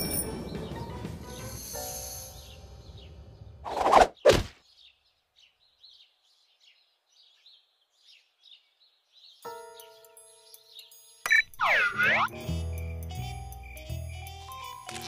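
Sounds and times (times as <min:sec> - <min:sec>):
ringing chime-like tone: 0:00.0 - 0:00.8
songbird chirps: 0:00.0 - 0:15.0
cartoon whooshes: 0:03.6 - 0:04.5.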